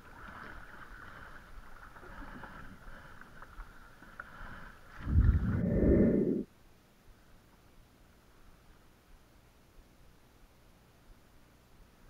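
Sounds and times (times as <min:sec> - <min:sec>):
kayak paddle strokes: 0:00.0 - 0:06.4
water washing along hull: 0:00.0 - 0:06.4
loud low rush: 0:05.0 - 0:06.5.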